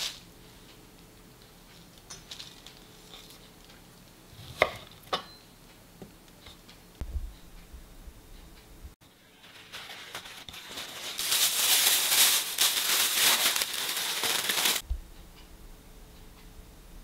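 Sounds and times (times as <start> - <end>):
plastic bag crinkling: 9.2 - 14.8.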